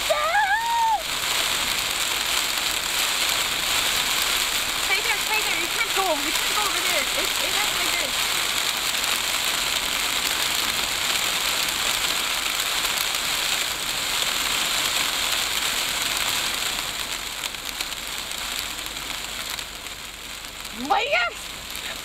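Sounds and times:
sand pelting car: 0.0s - 10.0s.

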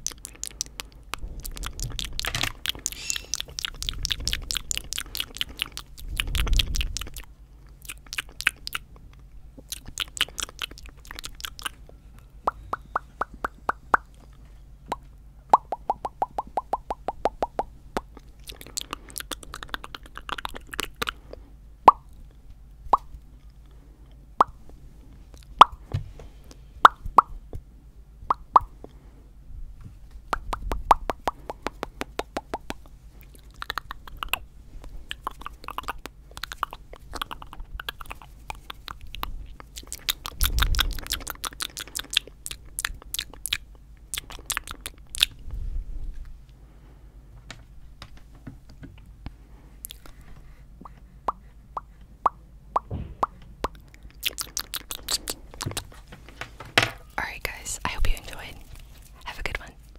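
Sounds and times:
tongue clicks and lip pops: 0.0s - 14.2s, 14.9s - 22.2s, 24.4s - 24.6s, 25.3s - 25.8s, 26.5s - 27.4s, 28.3s - 28.7s, 30.3s - 45.4s, 49.8s - 50.2s, 50.8s - 56.0s
breaths hitting microphone: 49.3s - 52.1s.

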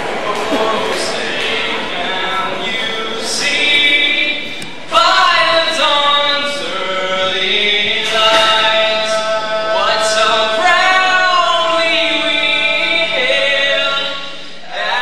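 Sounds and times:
young man singing unaccompanied: 0.2s - 15.0s.

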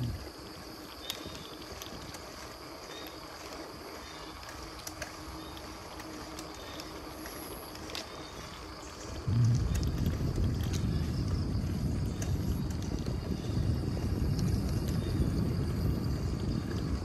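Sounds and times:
soft ticks: 3.0s - 8.7s.

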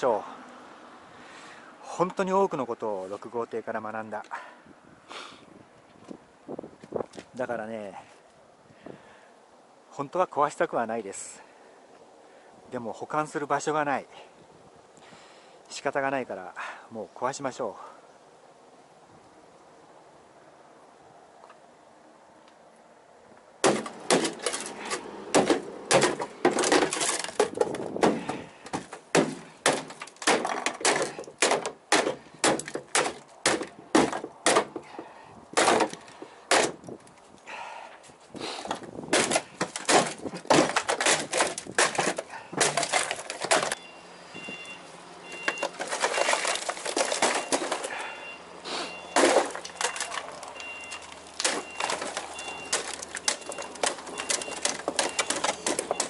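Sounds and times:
hammer smashing plywood: 23.6s - 36.9s, 38.7s - 43.8s, 45.4s - 48.2s, 49.1s - 56.0s
wood cracking and splintering: 23.6s - 37.2s, 38.6s - 43.8s, 45.3s - 48.2s, 49.1s - 56.0s.

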